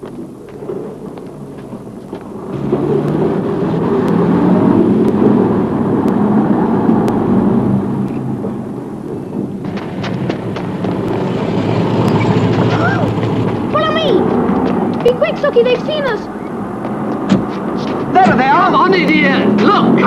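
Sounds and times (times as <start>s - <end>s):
vehicle engines rumbling: 0.0s - 20.0s
sharp clicks: 2.0s - 11.3s.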